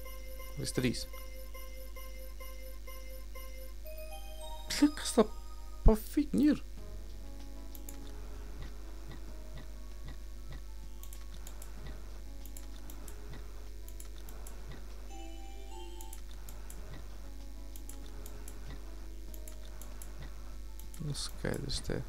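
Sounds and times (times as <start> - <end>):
slot game electronic tones and jingles: 0.0 - 5.8
steady low hum: 0.0 - 15.2
sharp clicks: 7.7 - 8.2, 10.1 - 14.8, 17.7 - 21.6.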